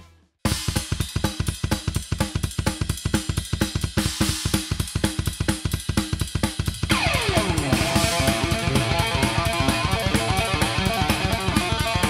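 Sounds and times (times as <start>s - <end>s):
rock drum kit playing: 0.0s - 12.0s.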